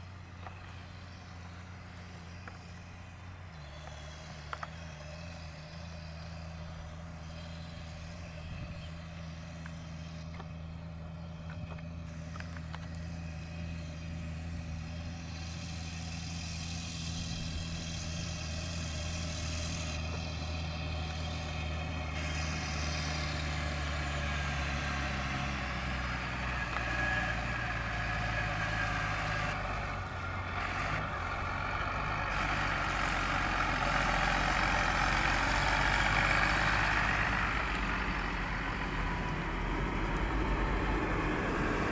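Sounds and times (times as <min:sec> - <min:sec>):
diesel engine running under load: 0:00.0 - 0:41.9
hiss: 0:12.1 - 0:29.6.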